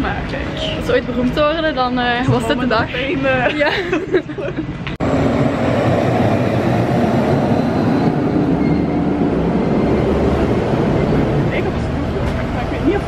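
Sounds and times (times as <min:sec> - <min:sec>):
truck rumbling past: 0:04.8 - 0:13.0.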